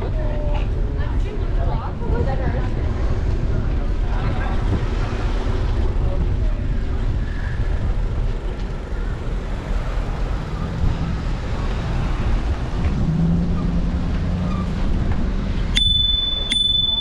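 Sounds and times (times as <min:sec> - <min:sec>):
vehicle engine humming: 0:00.0 - 0:17.0
wind and road noise rumble: 0:00.0 - 0:17.0
bicycle bell ding: 0:15.7 - 0:17.0.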